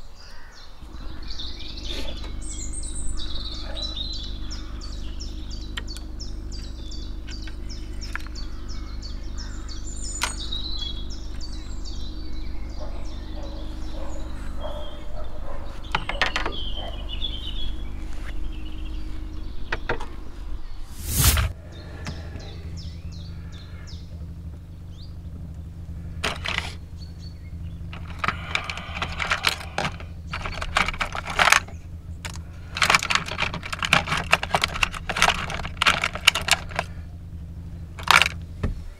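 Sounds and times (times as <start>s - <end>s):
songbirds singing: 0.0s - 38.9s
steady low hum: 0.7s - 38.9s
loud rush of noise: 20.8s - 21.7s.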